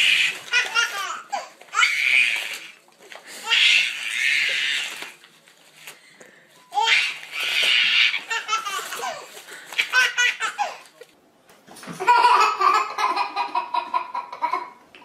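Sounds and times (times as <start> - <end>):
baby laughing: 0.0 - 2.0, 6.8 - 11.0, 12.0 - 14.8.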